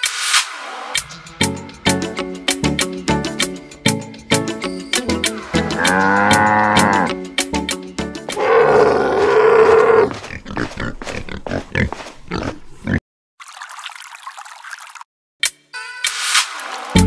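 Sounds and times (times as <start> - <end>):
background music with steady beat: 0.0 - 8.4
pig grunting: 8.4 - 13.0.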